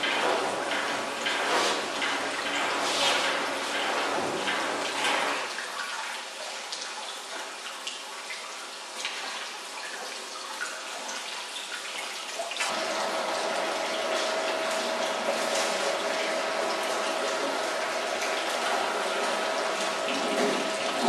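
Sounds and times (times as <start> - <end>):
liquid churning and splashing: 0.0 - 21.0
slicing machine humming: 12.7 - 21.0.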